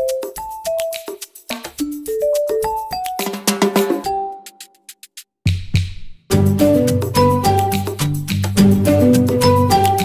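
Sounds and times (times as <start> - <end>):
melody over clicking beat: 0.0 - 5.2, 6.3 - 10.0.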